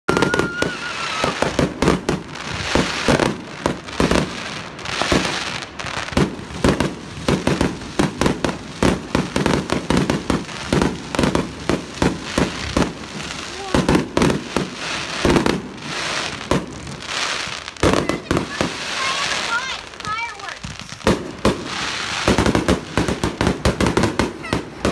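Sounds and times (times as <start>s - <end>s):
faint firework whistle: 0.1s - 1.6s
crackling hiss of fireworks: 0.1s - 24.9s
fireworks bangs: 0.1s - 24.9s.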